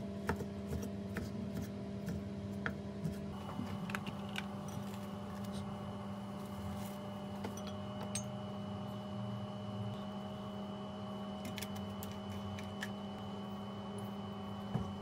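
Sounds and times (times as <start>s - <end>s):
steady low hum: 0.0s - 15.0s
faint high whine: 3.4s - 15.0s.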